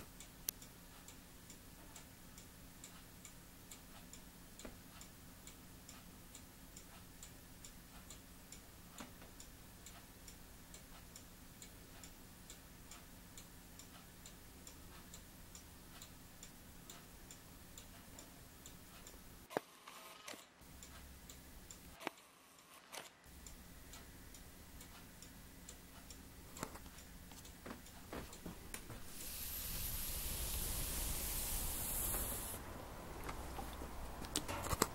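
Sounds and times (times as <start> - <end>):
faint steady ticking: 0.0 - 19.5, 20.6 - 22.0, 23.2 - 34.9
rushing hiss: 29.0 - 33.7.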